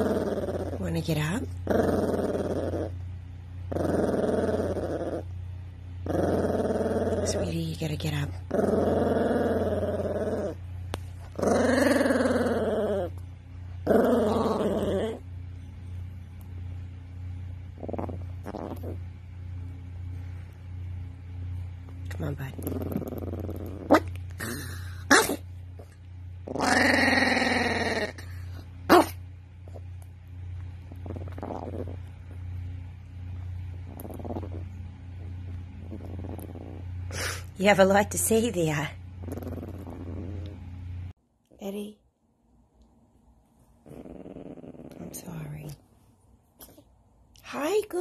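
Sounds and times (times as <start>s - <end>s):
dog growling: 0.0s - 3.0s, 3.6s - 5.4s, 6.0s - 13.2s, 13.8s - 15.3s, 17.7s - 19.1s, 22.4s - 29.8s, 30.9s - 32.4s, 33.6s - 37.5s, 39.2s - 40.8s, 43.8s - 45.8s.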